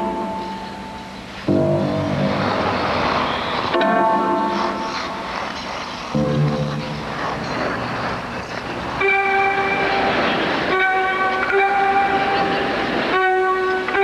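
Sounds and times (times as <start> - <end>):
whistle-like held chords: 0.0 - 4.8, 9.0 - 14.0
hissing noisy sound: 0.0 - 14.0.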